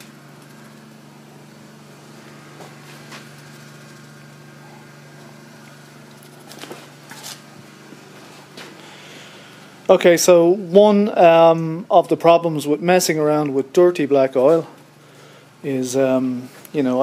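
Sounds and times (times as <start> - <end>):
electric motor humming: 0.0 - 10.4.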